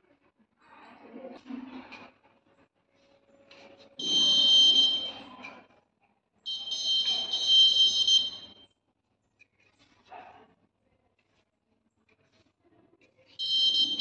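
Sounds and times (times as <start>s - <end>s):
high-pitched buzzer beeps: 6.5s - 8.6s, 13.4s - 14.0s.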